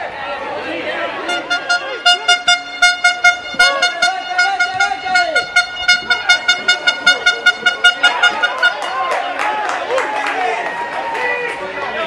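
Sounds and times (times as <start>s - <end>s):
horn tooting rapidly: 1.1s - 9.4s
people shouting: 3.3s - 11.6s.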